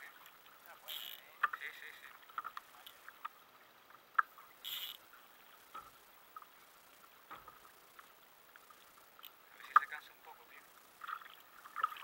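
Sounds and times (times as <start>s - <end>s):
short hiss: 4.6s - 5.0s.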